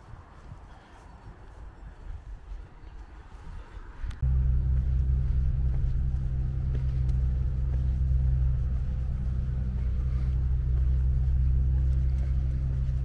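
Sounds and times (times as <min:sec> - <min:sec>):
faint low rumble: 0:00.2 - 0:13.0
engine humming: 0:04.1 - 0:13.0.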